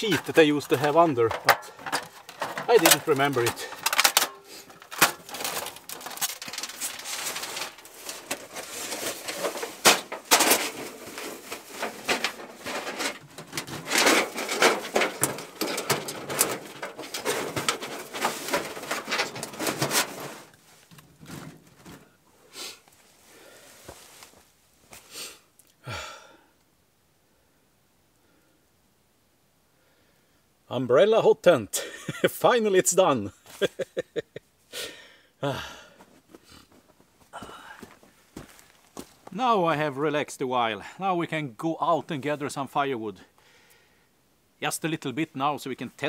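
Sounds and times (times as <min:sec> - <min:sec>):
sheet metal clinking and scraping: 0:00.0 - 0:22.0.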